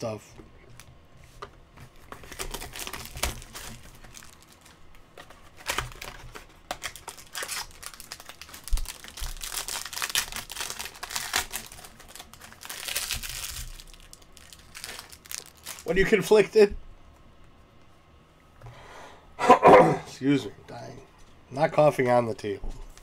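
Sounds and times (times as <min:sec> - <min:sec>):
card wrappers crinkling and tearing: 0:01.8 - 0:16.4.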